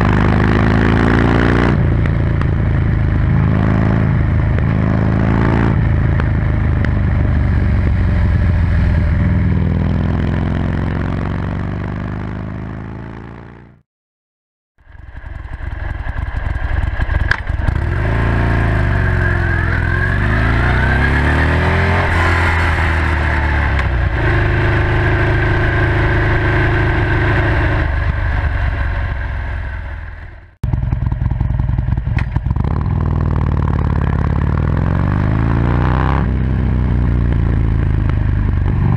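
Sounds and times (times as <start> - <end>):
motorcycle engine revving: 0.0 - 13.8, 14.8 - 38.9.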